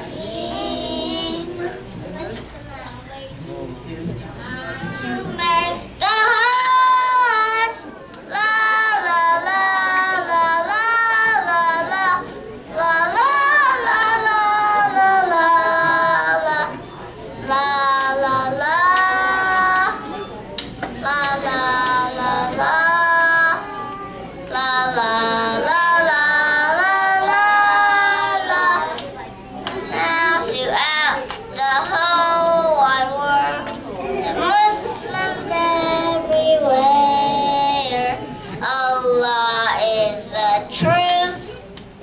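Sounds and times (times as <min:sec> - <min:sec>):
children singing: 0:00.0 - 0:02.4, 0:04.4 - 0:20.3, 0:21.0 - 0:41.5.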